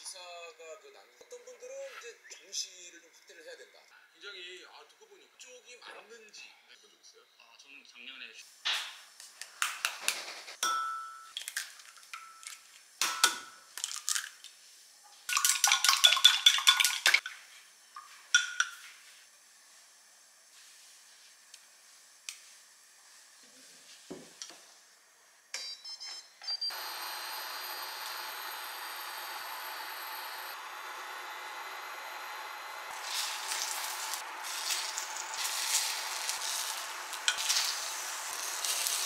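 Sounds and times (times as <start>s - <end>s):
chopsticks beating eggs in glass: 15.3s - 17.2s
eggs cracked on glass mug: 15.3s - 17.2s.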